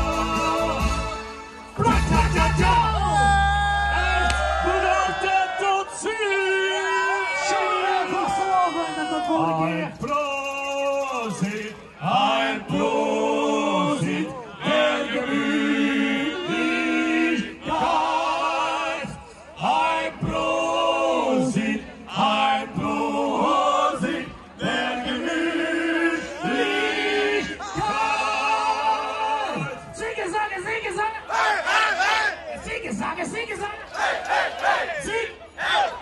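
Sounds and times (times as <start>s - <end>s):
men singing through pa: 0.0s - 2.9s, 10.9s - 29.1s.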